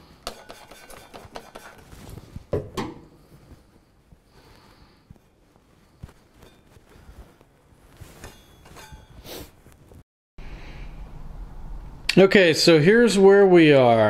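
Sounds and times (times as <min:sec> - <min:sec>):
rag rubbing metal blade: 0:00.2 - 0:02.0.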